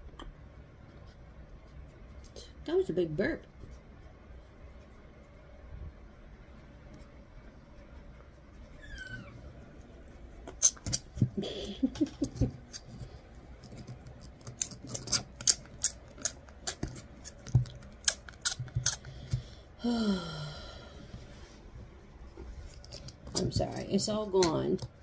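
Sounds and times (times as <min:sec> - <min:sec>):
puppy vocal sound: 0:08.7 - 0:09.6.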